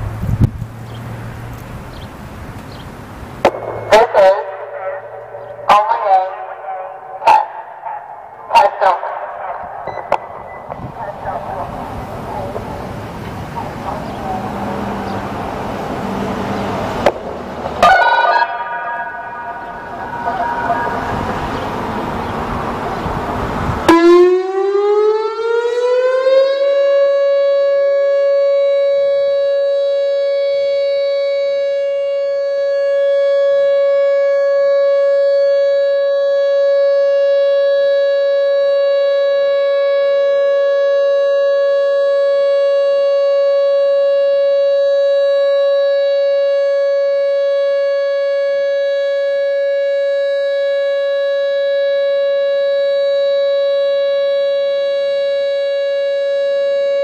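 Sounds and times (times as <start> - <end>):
loud rushing noise: 3.2 - 5.7, 18.8 - 23.9
warning siren tone: 3.2 - 57.0.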